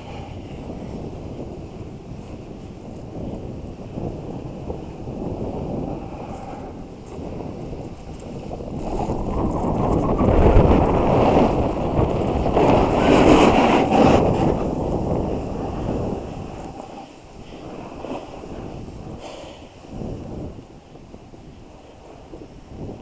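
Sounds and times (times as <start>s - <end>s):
hiss of sliding on snow: 0.0s - 23.0s
wind on camera microphone: 0.0s - 23.0s.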